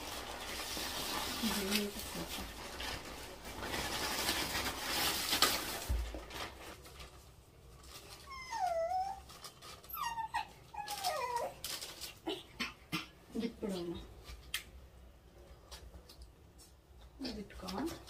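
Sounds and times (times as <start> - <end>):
plastic bag rustling: 0.0 - 12.5
puppy whimpering: 8.2 - 11.6.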